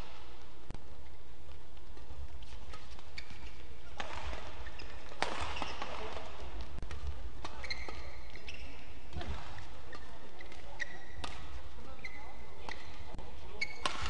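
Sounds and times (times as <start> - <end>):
court shoes squeaking: 0.0 - 14.0
low hum of hall: 0.0 - 14.0
racket hitting shuttlecock: 1.5 - 11.6, 13.8 - 14.0.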